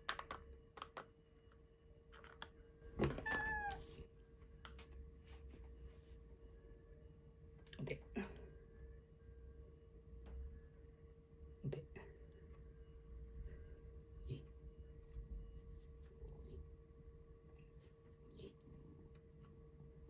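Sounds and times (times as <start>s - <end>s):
faint steady hum: 0.0s - 20.0s
cat meowing: 3.2s - 4.0s.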